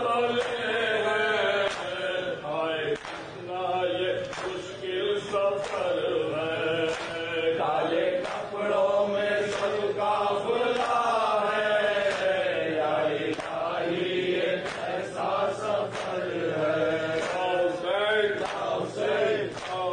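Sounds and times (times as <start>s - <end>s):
men chanting a lament: 0.0s - 19.9s.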